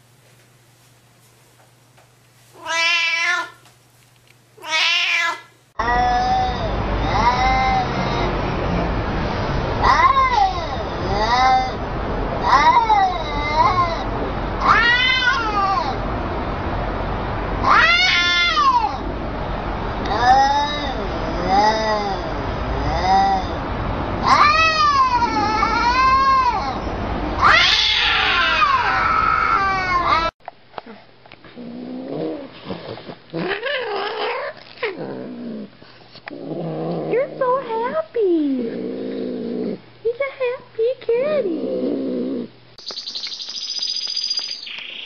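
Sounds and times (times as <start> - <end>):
cats yowling: 2.6 - 3.6, 4.6 - 8.6, 9.8 - 11.8, 12.4 - 16.1, 17.6 - 19.1, 20.0 - 23.6, 24.2 - 30.4.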